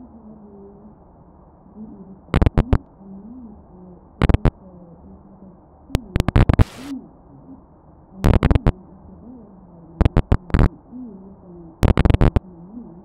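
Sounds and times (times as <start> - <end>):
clusters of sharp clicks: 2.4 - 2.9, 4.2 - 4.6, 6.0 - 6.9, 8.3 - 8.7, 10.0 - 10.7, 11.8 - 12.4.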